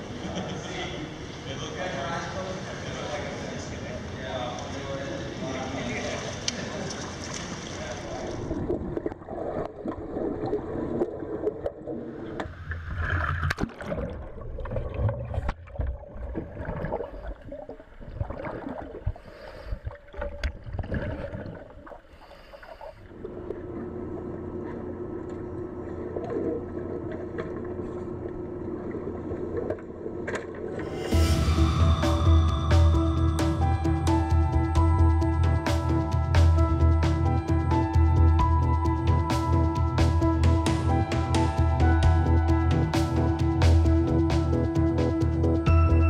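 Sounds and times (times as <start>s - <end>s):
muffled underwater sloshing: 4.6s - 31.1s
muffled underwater rush: 5.2s - 32.2s.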